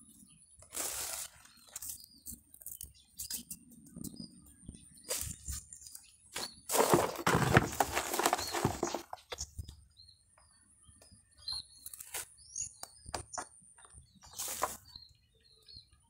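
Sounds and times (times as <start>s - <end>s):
birds chirping: 0.0s - 16.0s
rustling and scraping: 0.6s - 4.1s, 5.0s - 9.6s, 13.2s - 15.0s.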